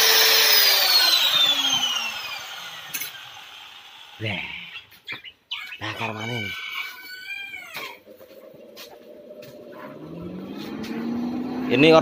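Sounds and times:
rooster crowing: 5.8 - 8.1.

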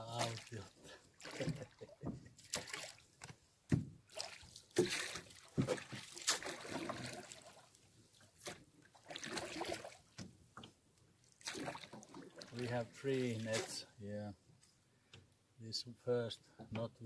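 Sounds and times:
water dripping and splashing: 0.0 - 3.4, 4.0 - 10.2, 11.2 - 13.9.

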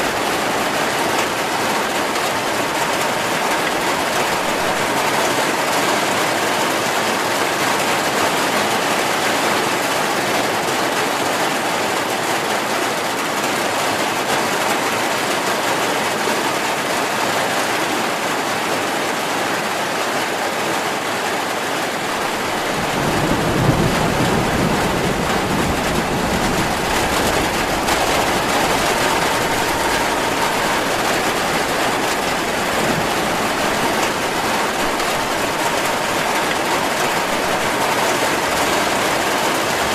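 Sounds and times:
heavy rain: 0.0 - 39.9
low rumble of thunder: 22.2 - 39.4.

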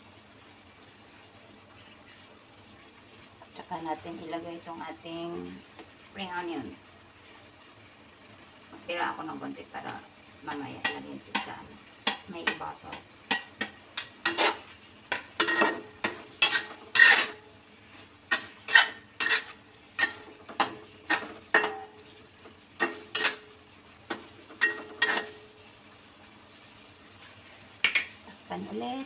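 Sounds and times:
metal spatula scraping a wok: 10.8 - 22.0, 22.8 - 23.5, 24.1 - 25.4.

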